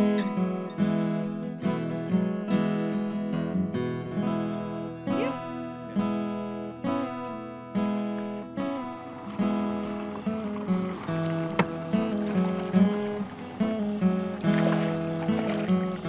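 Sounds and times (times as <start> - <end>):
acoustic guitar strumming: 0.0 - 16.0.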